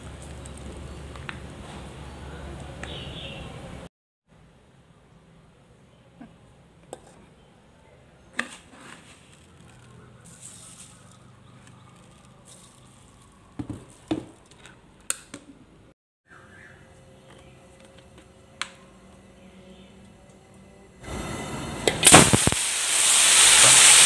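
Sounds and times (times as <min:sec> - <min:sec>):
brief hiss: 0:21.1 - 0:24.0.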